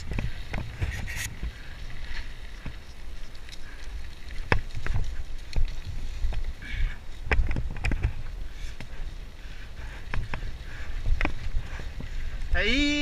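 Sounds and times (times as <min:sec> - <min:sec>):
bike rolling on dirt trail: 0:00.0 - 0:13.0
bike knocks and rattles: 0:04.4 - 0:06.4, 0:07.2 - 0:08.3.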